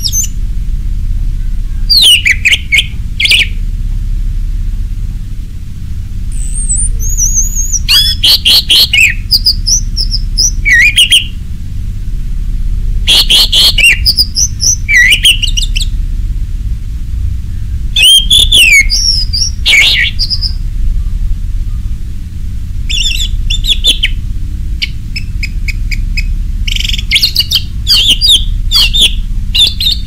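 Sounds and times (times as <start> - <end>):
steady low hum: 0.0 - 30.0
thrush singing: 13.0 - 16.0, 17.9 - 22.0.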